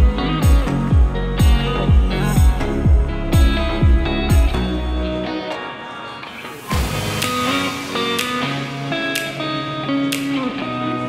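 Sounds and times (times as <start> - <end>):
kick drum beat: 0.0 - 4.7.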